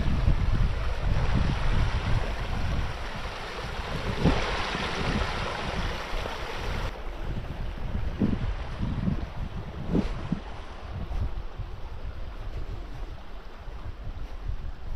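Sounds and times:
stream babbling over rocks: 0.0s - 9.0s
wind buffeting microphone: 0.0s - 14.9s.

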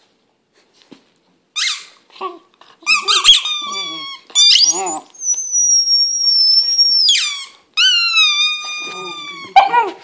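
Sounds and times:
rubber squeaky toy squeaking: 1.6s - 2.0s, 2.8s - 9.9s
puppy howl: 3.2s - 7.2s, 7.8s - 10.0s.

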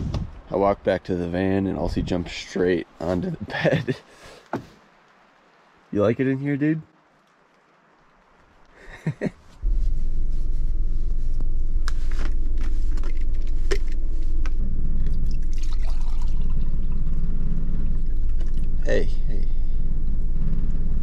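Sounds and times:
steady low rumble: 0.0s - 4.0s, 8.7s - 21.0s
water pouring into a cup: 15.2s - 16.9s.

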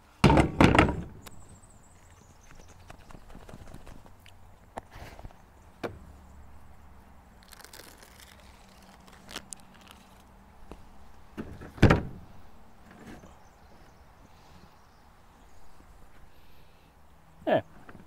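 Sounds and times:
heavy thunk: 0.2s - 1.2s.

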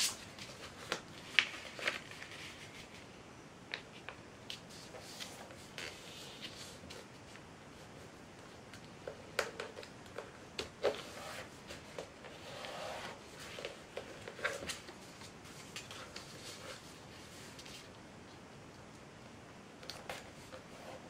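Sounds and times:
paper crackling and snapping: 0.0s - 2.7s
paper sliding rustle: 0.0s - 3.1s, 4.6s - 7.3s.

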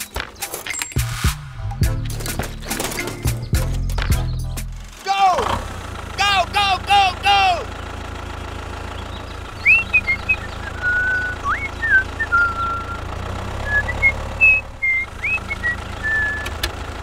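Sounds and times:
tractor engine humming: 0.0s - 17.0s
whistled notes: 9.6s - 16.6s.

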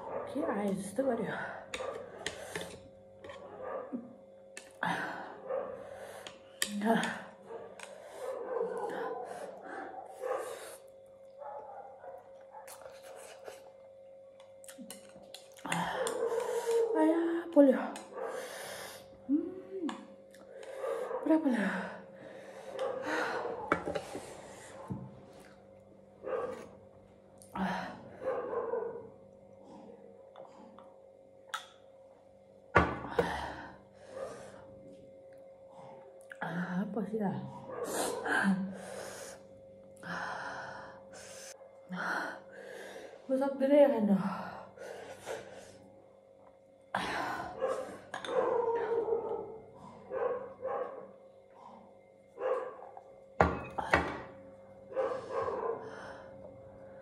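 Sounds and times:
dog barking: 0.0s - 0.7s, 3.4s - 4.0s, 5.5s - 5.9s, 7.5s - 10.8s, 11.4s - 12.8s, 20.8s - 21.3s, 22.8s - 23.8s, 26.3s - 26.7s, 28.2s - 29.1s, 47.6s - 51.2s, 52.4s - 53.0s, 54.9s - 55.9s.

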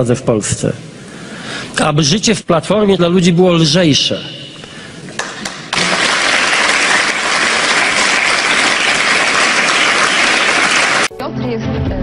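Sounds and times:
audience applauding: 5.2s - 11.1s.

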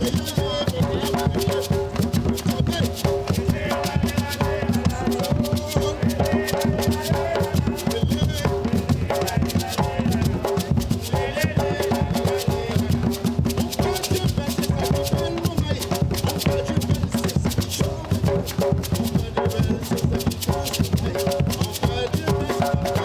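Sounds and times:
hand drums beating: 0.0s - 23.0s
man singing: 0.0s - 23.0s
shaken rattle: 4.1s - 7.5s, 18.4s - 23.0s.

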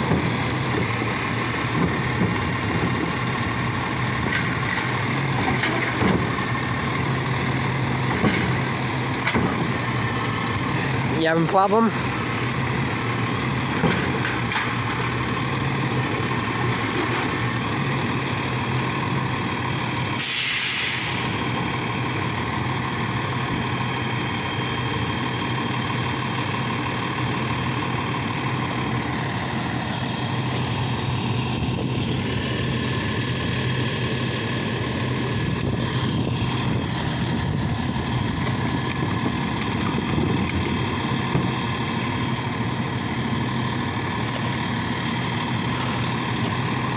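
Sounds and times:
truck engine idling: 0.0s - 46.9s
air hiss burst: 19.8s - 21.4s.

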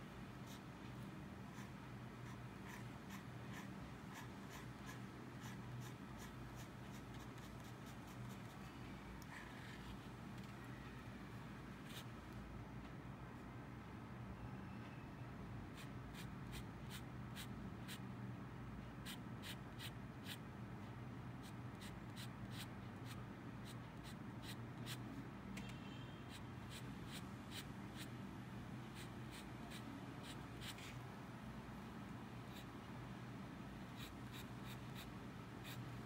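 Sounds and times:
pen nib scratching paper: 1.5s - 8.6s, 15.8s - 18.0s, 19.0s - 20.4s, 21.4s - 25.0s, 26.3s - 28.1s, 28.9s - 31.0s, 34.0s - 35.9s.

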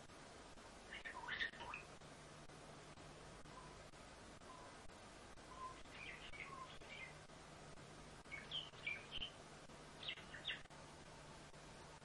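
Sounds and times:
starling chirps and whistles: 0.9s - 1.9s, 5.5s - 7.2s, 8.3s - 9.4s, 10.0s - 10.7s.

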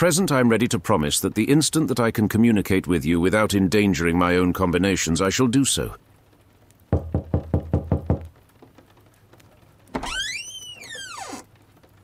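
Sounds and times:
knocking on wooden door: 6.9s - 8.3s
door creaking open: 9.9s - 11.5s.

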